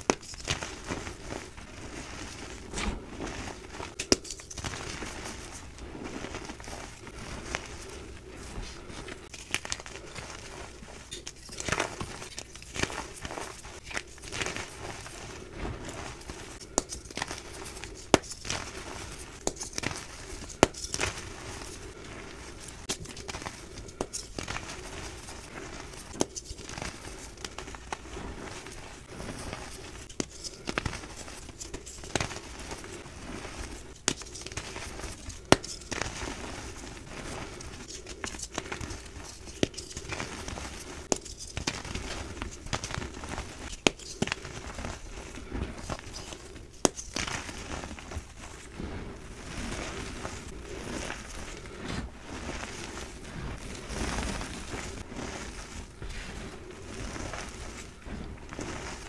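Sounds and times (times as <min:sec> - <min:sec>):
hands crunching chalk powder: 0:00.0 - 0:59.0
chalk crackling and snapping: 0:03.9 - 0:05.1, 0:16.4 - 0:22.0, 0:22.7 - 0:28.1, 0:37.8 - 0:48.9.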